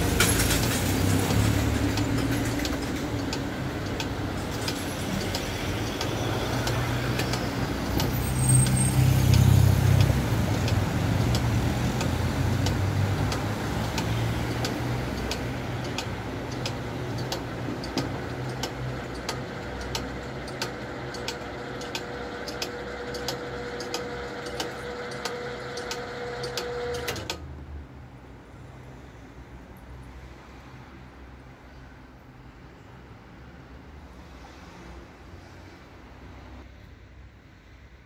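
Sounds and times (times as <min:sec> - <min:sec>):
level-crossing mechanism clicking: 0:00.0 - 0:27.4
road vehicle passing: 0:00.0 - 0:38.0.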